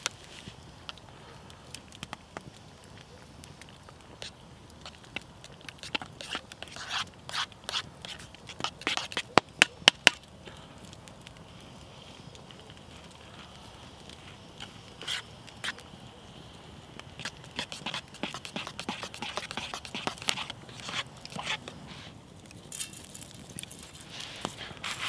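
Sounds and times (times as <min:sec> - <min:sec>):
campfire crackling: 0:00.0 - 0:25.0.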